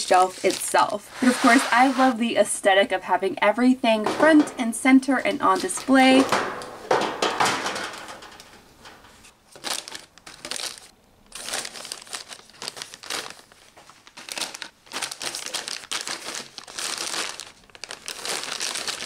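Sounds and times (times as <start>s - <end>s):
plastic snack bags crinkling: 0.0s - 2.1s, 5.4s - 6.2s, 9.4s - 19.0s.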